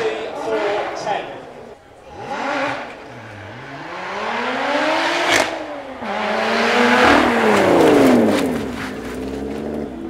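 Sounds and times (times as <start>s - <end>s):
car engine accelerating: 1.8s - 10.0s
engine sharp crack: 5.0s - 9.9s.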